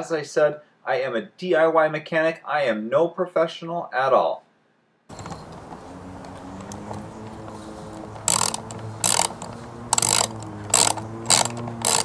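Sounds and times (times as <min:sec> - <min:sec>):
socket ratchet clicking: 0:06.2 - 0:12.0.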